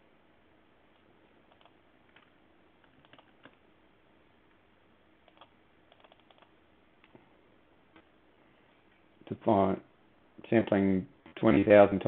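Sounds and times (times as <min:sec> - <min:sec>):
computer mouse clicks: 0:01.5 - 0:03.6, 0:05.2 - 0:07.2.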